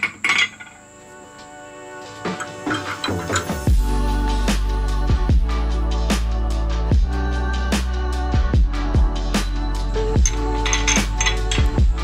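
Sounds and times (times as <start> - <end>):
electronic music: 0.8 - 12.0
deep bass line: 3.7 - 12.0.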